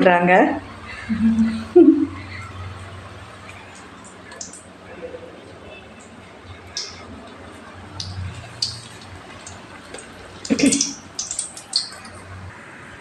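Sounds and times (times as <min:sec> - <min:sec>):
low hum: 0:00.8 - 0:04.6
food frying in oil: 0:02.2 - 0:04.8, 0:05.8 - 0:12.9
spoon working batter in pot: 0:06.7 - 0:12.4.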